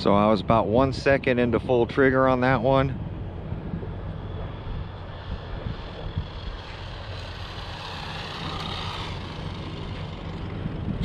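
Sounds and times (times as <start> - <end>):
electric rc car motor whining: 4.8 - 11.0.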